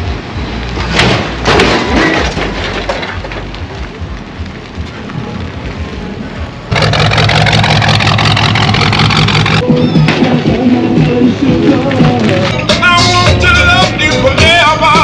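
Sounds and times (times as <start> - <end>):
cars rolling past: 0.0 - 15.0
car engine running: 6.7 - 9.6
loud music: 9.3 - 15.0.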